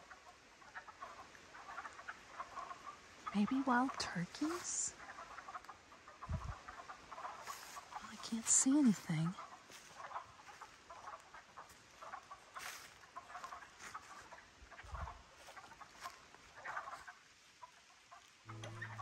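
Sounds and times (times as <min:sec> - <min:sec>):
animals clucking: 0:00.0 - 0:19.0
guitar music: 0:18.5 - 0:19.0.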